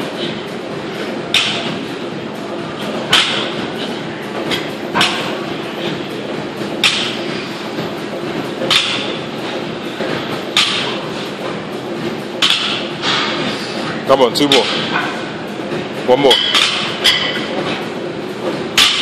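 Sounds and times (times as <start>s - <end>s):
gym background noise: 0.0s - 19.0s.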